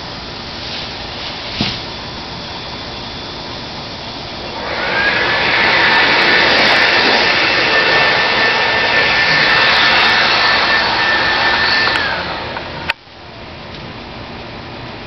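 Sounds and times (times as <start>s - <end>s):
chainsaw running at high revs: 1.6s - 12.9s.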